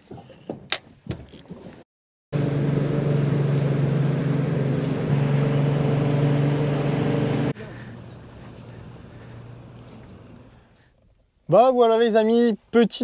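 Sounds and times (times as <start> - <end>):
outboard motor running: 2.4 - 10.7.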